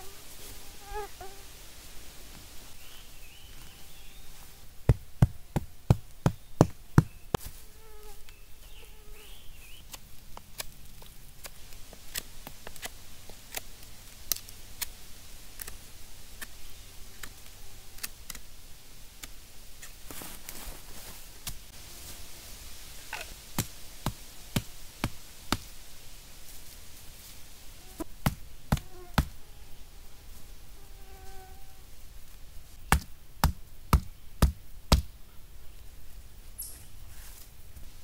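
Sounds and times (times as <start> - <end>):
insects buzzing: 0.0 - 33.0
bird chirping: 2.8 - 4.4, 6.2 - 7.4, 8.2 - 10.0, 36.5 - 37.1.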